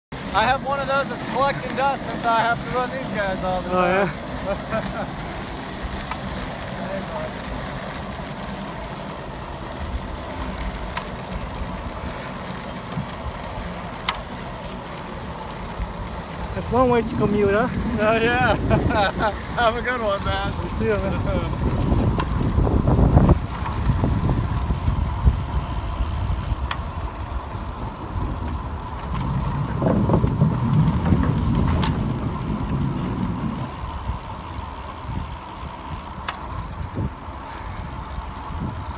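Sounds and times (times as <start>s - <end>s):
bicycle rolling on asphalt: 0.1s - 38.9s
wind buffeting microphone: 15.6s - 38.9s.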